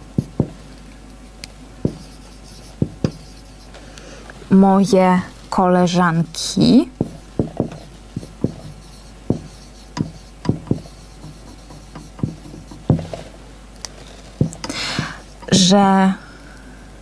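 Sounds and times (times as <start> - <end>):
marker writing on whiteboard: 0.0 - 0.7, 1.8 - 3.7, 7.0 - 13.3, 14.0 - 15.7.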